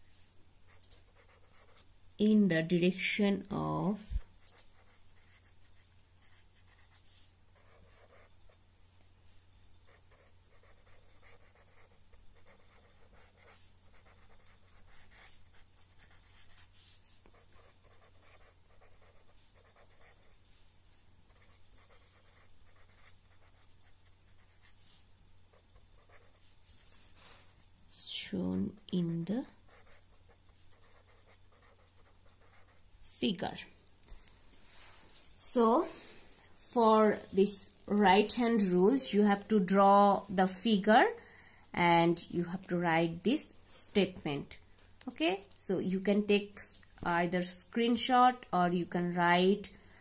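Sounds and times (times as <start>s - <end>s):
low steady hum: 0.0s - 50.0s
pen scratching on paper: 1.1s - 1.8s, 4.4s - 8.3s, 9.9s - 20.6s, 21.3s - 27.5s, 29.7s - 32.8s.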